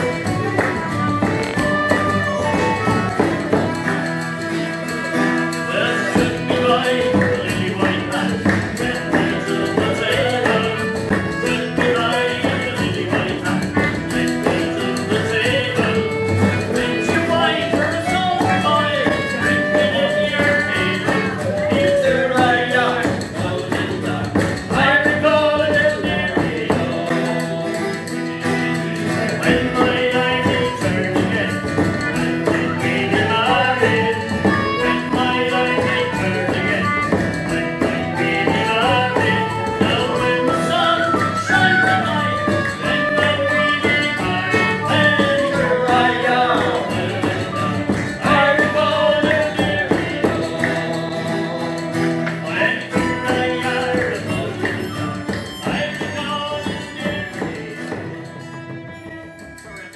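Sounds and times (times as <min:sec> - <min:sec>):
low whistle melody: 0:00.0 - 0:07.3, 0:16.0 - 0:23.0, 0:29.9 - 0:49.5
man singing: 0:00.0 - 0:58.6, 0:59.6 - 0:59.9
bowed string instrument: 0:00.0 - 0:59.9
strummed acoustic guitar: 0:00.0 - 0:59.9
low whistle: 0:38.2 - 0:46.2.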